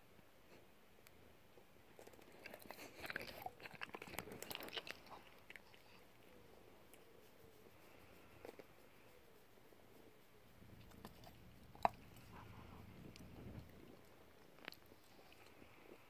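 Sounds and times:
cats crunching dry treats: 1.9s - 6.0s.

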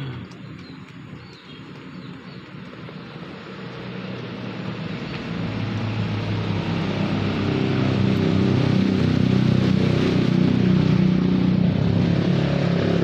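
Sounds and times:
dog crunching and lapping food: 0.0s - 5.2s
low rumbling hum: 0.0s - 13.0s.

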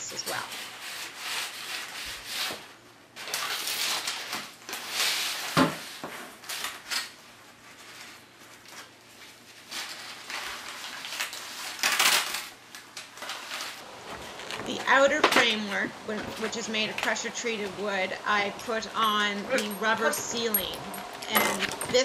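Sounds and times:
foil tape crinkling and rustling: 0.1s - 14.8s.

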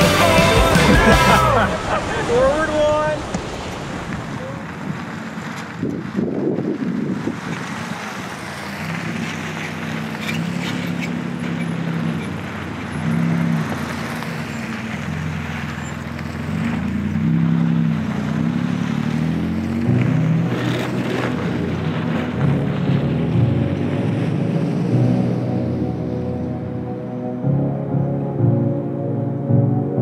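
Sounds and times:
background music with low notes: 0.0s - 1.7s, 19.8s - 30.0s
cars driving past on dirt road: 0.0s - 28.7s.

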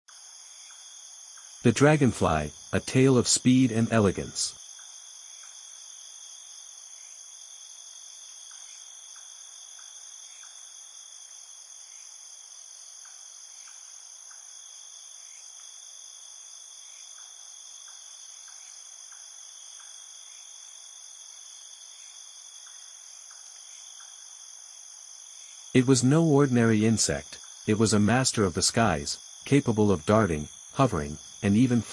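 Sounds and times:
insect chorus chirring: 0.1s - 31.9s
faint soft ticks: 17.2s - 20.0s, 22.6s - 24.2s.

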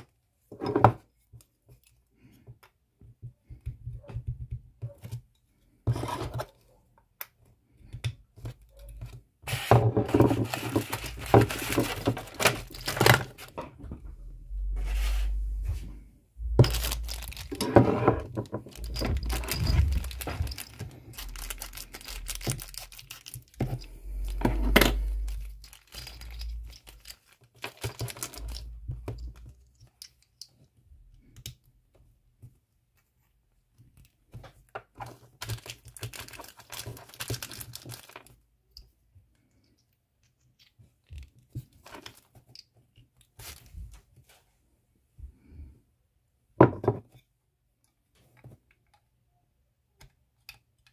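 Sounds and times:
plastic bag crinkling and tearing: 10.4s - 13.5s, 16.6s - 17.6s, 18.7s - 23.6s, 25.0s - 28.6s, 35.4s - 38.3s.

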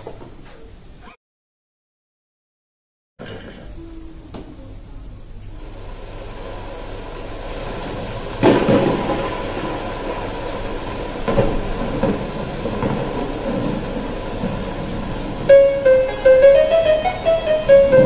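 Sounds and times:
rumbling noisy music track: 5.7s - 18.0s
loud hits: 6.7s - 18.0s.

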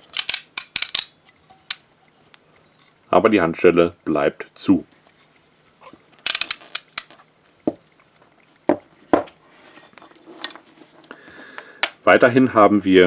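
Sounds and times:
metal handcuff clicks and clinks: 0.1s - 1.2s, 6.3s - 7.1s.

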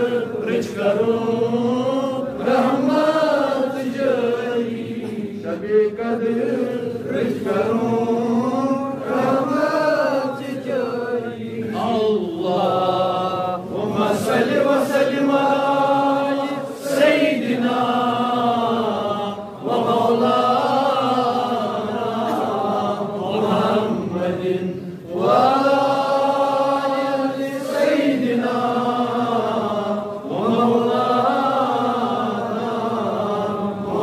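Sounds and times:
man chanting melodically: 7.9s - 16.6s.

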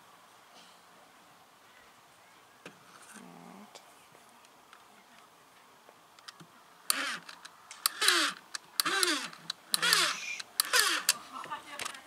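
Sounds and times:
toy rifle handling clicks: 6.2s - 11.2s.

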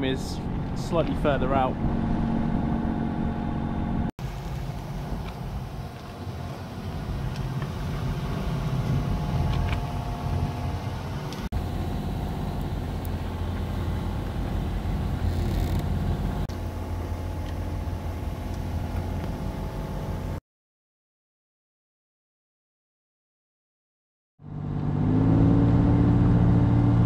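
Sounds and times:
boat engine droning: 0.0s - 20.4s.

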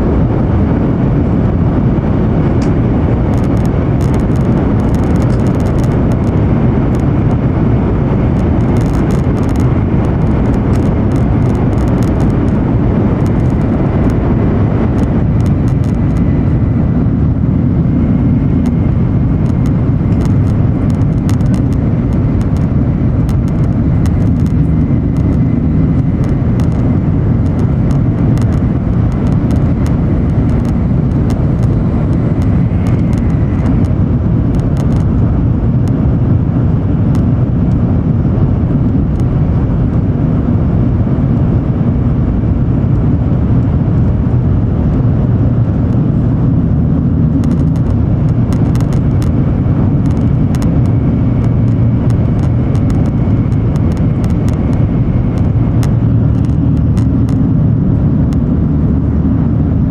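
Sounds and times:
train cabin rumble: 0.0s - 36.4s.

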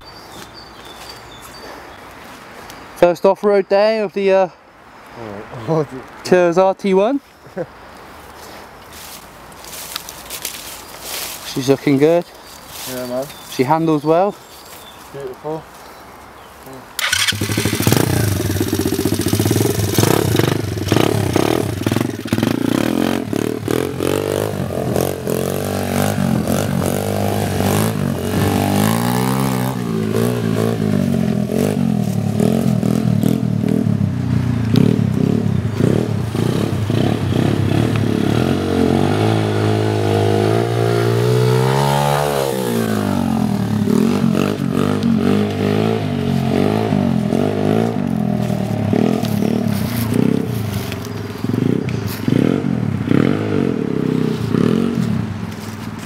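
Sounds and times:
small motorbike engines revving: 17.0s - 55.3s.

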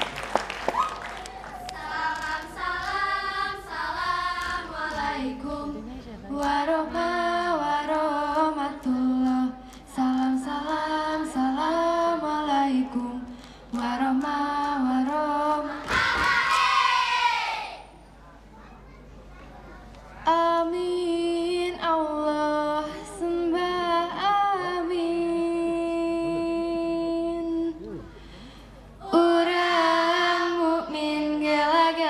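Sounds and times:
sharp claps: 0.0s - 3.0s, 15.8s - 16.8s
voices chanting together: 1.2s - 5.8s, 15.6s - 17.8s.

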